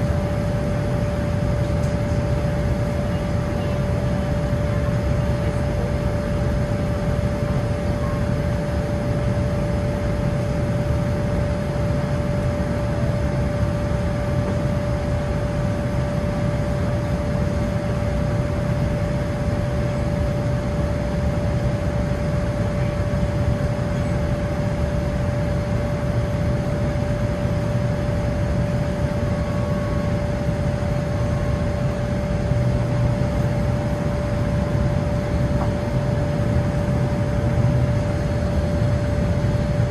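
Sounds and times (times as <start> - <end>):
airplane engine and airflow rumble: 0.0 - 39.9
steady hum: 0.0 - 39.9.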